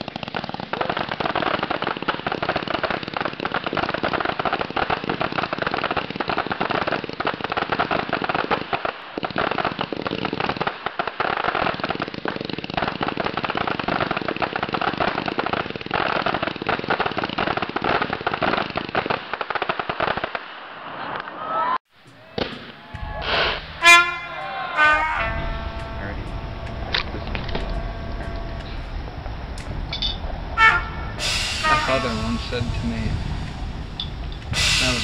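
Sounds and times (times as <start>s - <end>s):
firecrackers popping: 0.0s - 35.0s.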